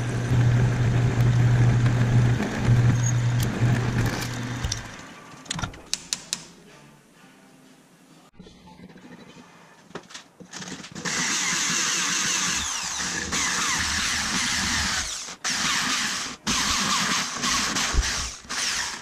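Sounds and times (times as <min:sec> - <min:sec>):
electric drill drilling into steel: 0:00.8 - 0:05.0, 0:11.0 - 0:19.0.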